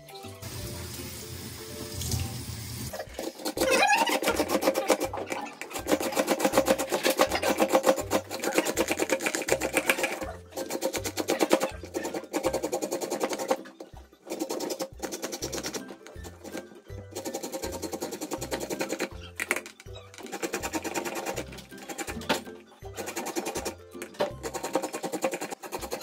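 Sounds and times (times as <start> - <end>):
kitchen tap running: 0.4 - 6.0
papaya rasped on grater: 3.0 - 13.6, 14.3 - 15.9, 17.1 - 19.3, 20.2 - 22.2, 23.0 - 26.0.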